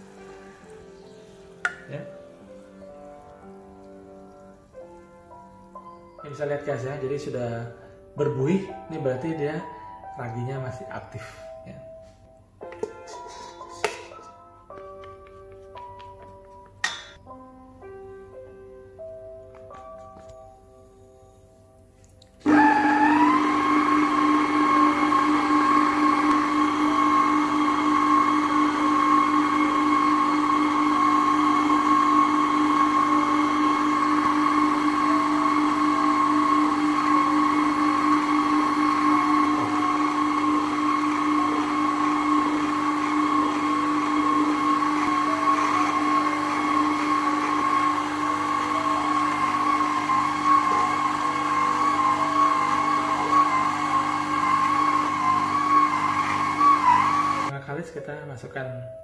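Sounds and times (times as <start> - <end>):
stand mixer motor whine: 22.4 - 57.5.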